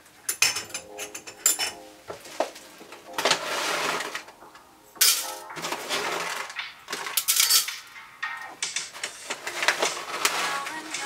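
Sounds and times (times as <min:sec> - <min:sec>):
rustling and scraping: 0:02.2 - 0:04.3, 0:05.6 - 0:07.6, 0:08.8 - 0:11.0.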